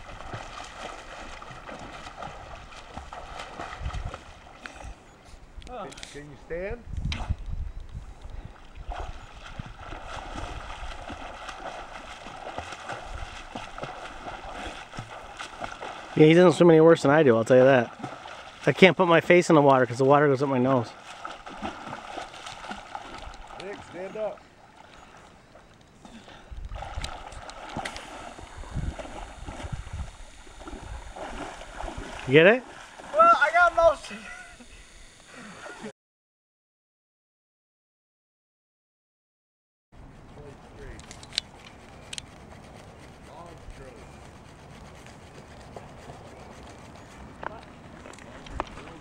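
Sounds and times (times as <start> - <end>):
water splashing from swimming: 0.0 - 4.8, 8.5 - 34.1.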